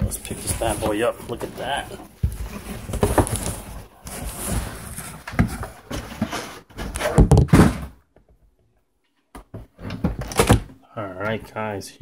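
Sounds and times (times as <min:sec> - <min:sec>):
cardboard box handling noise: 0:00.0 - 0:07.8.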